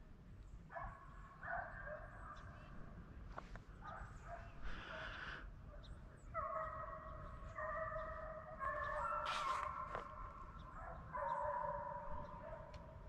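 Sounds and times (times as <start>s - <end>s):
hounds baying and howling: 6.2s - 13.0s.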